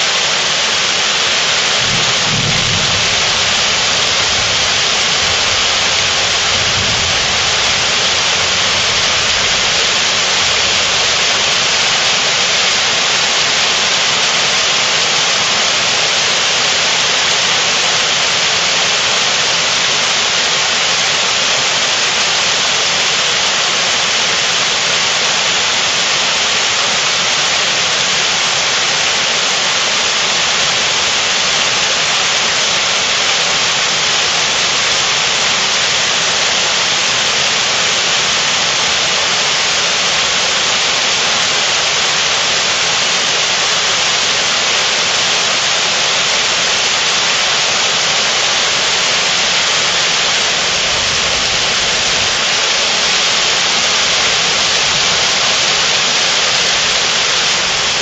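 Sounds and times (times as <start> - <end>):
heavy rain on stone: 0.0 - 58.0
thunder rumble: 1.8 - 9.8.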